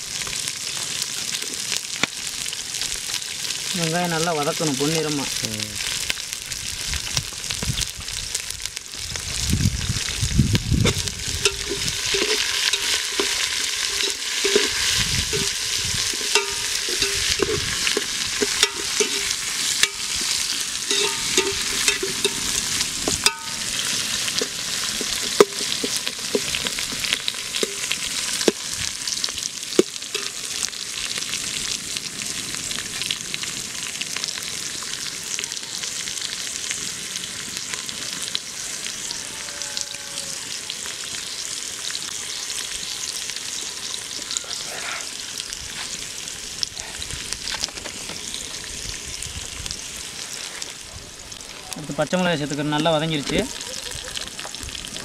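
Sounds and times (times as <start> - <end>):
onions sizzling in hot oil: 0.0 - 55.0
metal ladle scraping and knocking pot: 10.8 - 23.7, 24.4 - 26.8.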